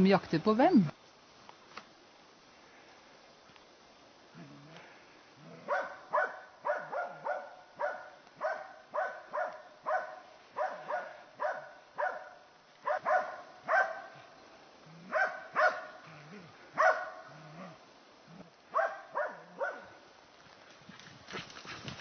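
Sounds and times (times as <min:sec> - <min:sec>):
dog barking: 0:05.6 - 0:14.3, 0:15.1 - 0:16.1, 0:16.7 - 0:17.4, 0:18.7 - 0:20.0.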